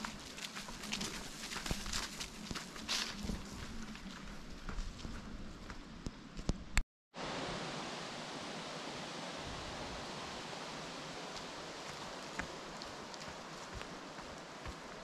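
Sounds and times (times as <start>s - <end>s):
footsteps on forest trail: 0.0s - 6.5s, 11.2s - 15.0s.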